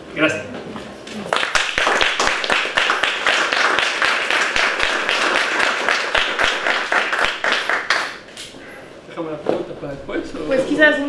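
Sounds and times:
audience applauding: 0:01.3 - 0:08.3.

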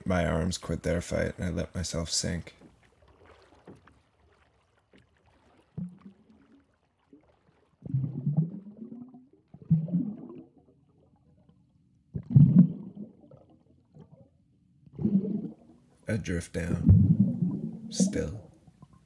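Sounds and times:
muffled underwater bubbling: 0:05.4 - 0:06.6, 0:07.2 - 0:11.5, 0:12.1 - 0:14.3, 0:14.9 - 0:15.7, 0:16.6 - 0:19.0.

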